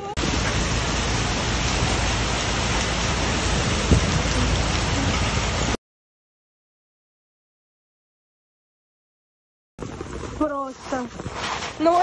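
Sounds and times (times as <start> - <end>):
hail and rain on pavement: 0.2 - 5.8.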